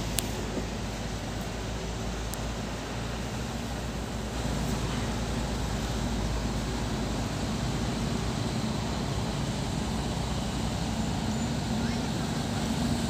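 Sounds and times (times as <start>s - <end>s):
diesel truck engine running: 0.0s - 13.0s
motorcycle engines: 0.0s - 13.0s
tyres on gravel road: 0.0s - 13.0s.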